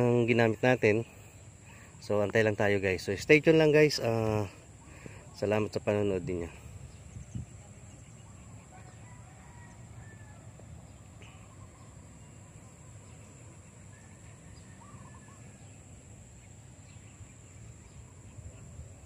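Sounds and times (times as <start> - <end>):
faint bird calls: 0.0 - 19.0
steady high hiss: 0.0 - 19.0
wind rumble on microphone: 6.1 - 11.0.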